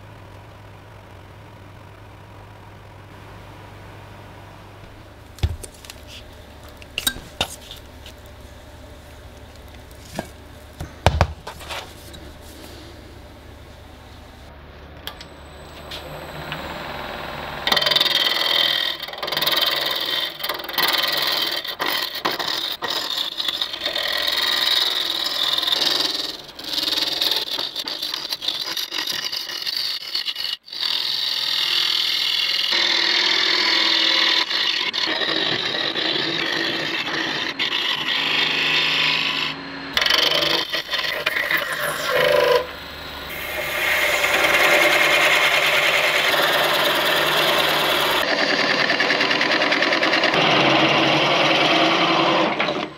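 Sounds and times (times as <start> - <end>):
low hum: 0.0 - 18.5, 38.7 - 48.3
lathe tool scraping wood: 15.5 - 52.9.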